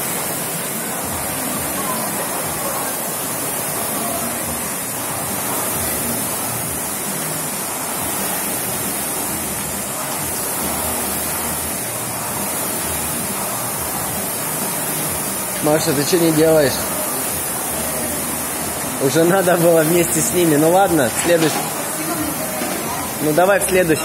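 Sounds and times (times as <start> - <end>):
rowing machine flywheels whooshing: 0.0 - 24.0.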